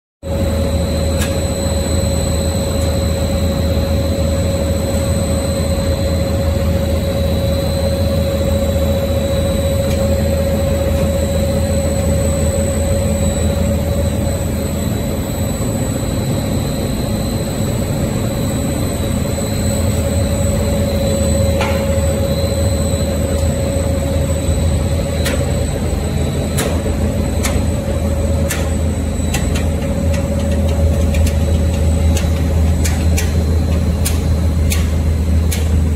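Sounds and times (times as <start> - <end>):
machine hum: 0.2 - 35.9
steady machine whine: 0.2 - 35.9.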